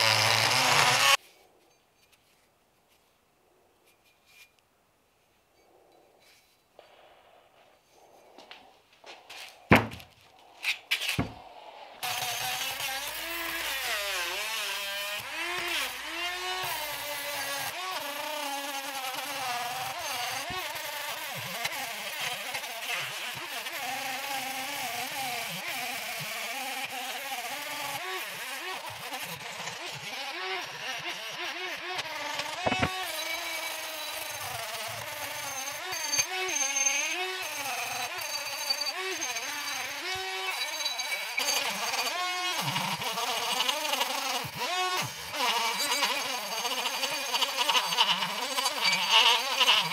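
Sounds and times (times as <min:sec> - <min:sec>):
rotary tool whining: 0:00.0 - 0:02.5, 0:10.3 - 0:49.9
knocks: 0:09.7 - 0:10.1.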